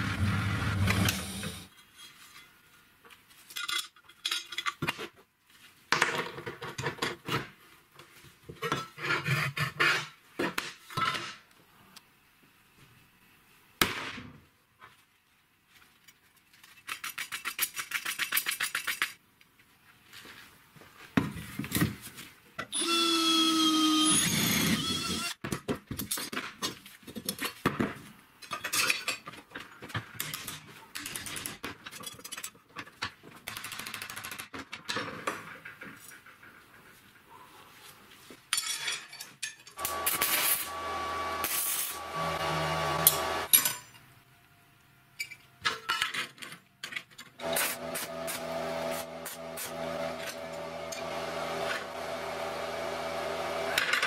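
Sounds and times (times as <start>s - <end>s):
power tool whining: 22.8s - 25.4s, 39.8s - 43.5s, 47.4s - 54.0s
electric arc welder buzzing: 39.8s - 43.5s, 47.4s - 54.0s
saw blade cutting wood: 39.8s - 43.5s, 47.4s - 54.0s.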